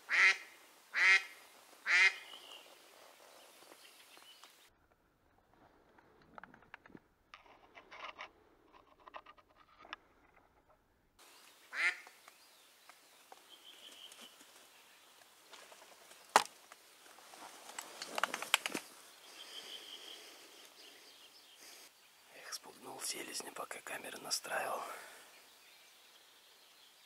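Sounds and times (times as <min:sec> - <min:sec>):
duck quacking: 0:00.1 - 0:02.2, 0:11.7 - 0:12.0.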